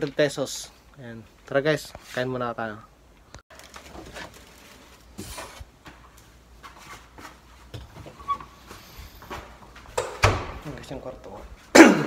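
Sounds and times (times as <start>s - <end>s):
rustling: 3.5s - 5.8s.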